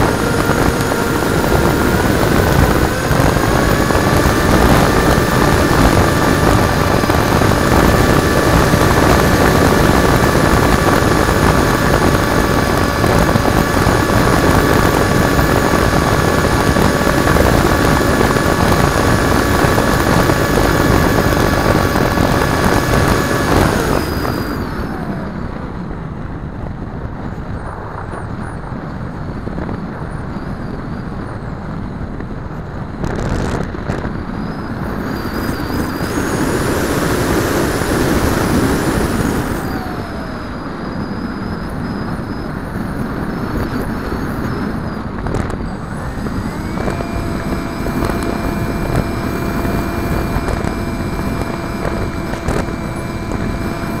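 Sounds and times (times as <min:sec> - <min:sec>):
electric motor whine: 0:00.0 - 0:26.5, 0:33.0 - 0:54.0
wind rushing: 0:00.0 - 0:30.2.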